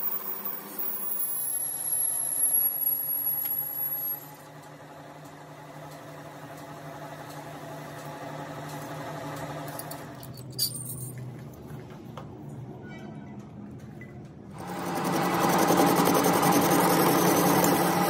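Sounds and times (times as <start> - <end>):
thin high whine: 0.0 - 4.4
lathe motor running: 0.0 - 9.8, 14.6 - 18.0.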